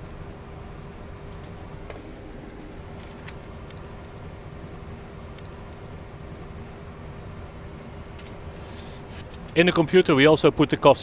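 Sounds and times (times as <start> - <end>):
constant hum: 0.0 - 11.0
faint clicks: 3.3 - 6.8.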